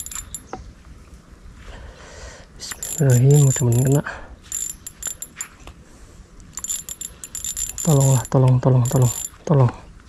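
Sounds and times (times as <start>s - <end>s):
fishing reel ratcheting: 0.0s - 0.4s, 2.7s - 5.5s, 6.6s - 9.4s.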